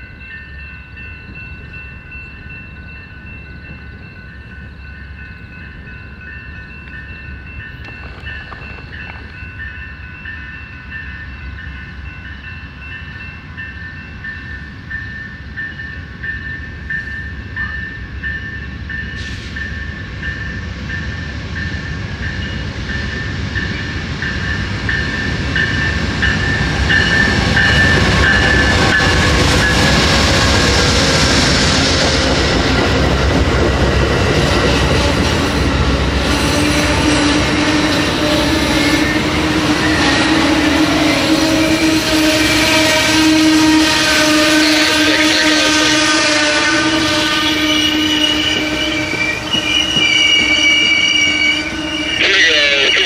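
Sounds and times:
bell ringing: 0.0s - 29.0s
train rumbling: 0.0s - 53.0s
hiss of wheels and brakes: 19.2s - 19.8s.

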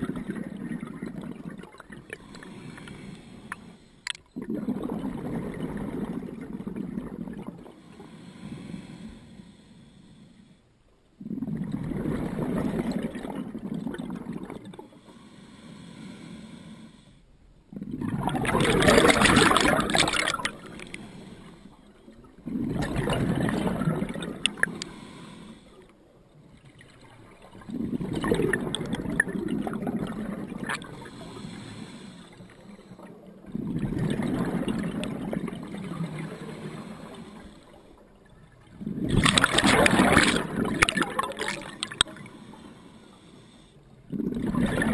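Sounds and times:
exhaled bubbles rumbling: 0.0s - 3.6s, 4.3s - 7.8s, 11.2s - 14.9s, 17.7s - 25.0s, 26.4s - 32.0s, 32.6s - 42.5s, 44.0s - 44.9s.

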